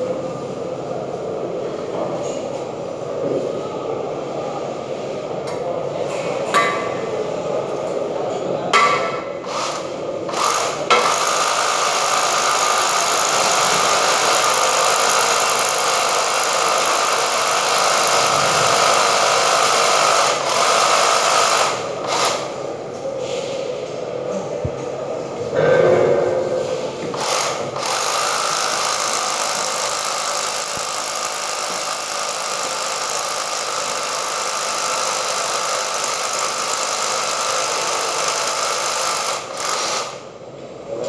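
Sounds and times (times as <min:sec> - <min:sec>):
cordless drill boring into wall: 0:09.5 - 0:22.4, 0:27.2 - 0:40.2.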